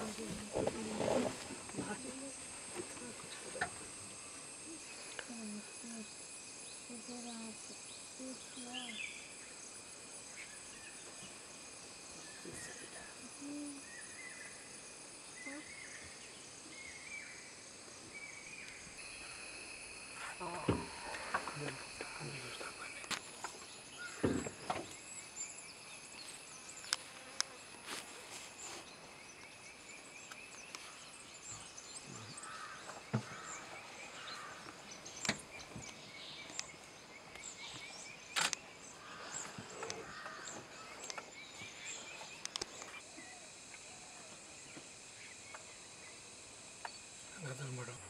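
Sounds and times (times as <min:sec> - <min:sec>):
insects trilling: 0:00.0 - 0:48.0
sharp clicks: 0:38.3 - 0:38.6.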